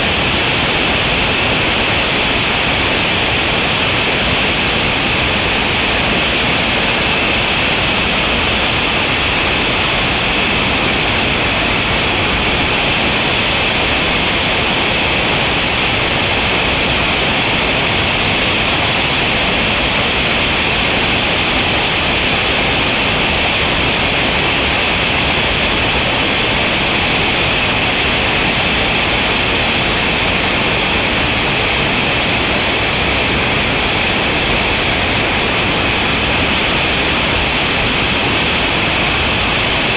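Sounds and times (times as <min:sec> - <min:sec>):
whitewater rapids rushing: 0:00.0 - 0:39.9.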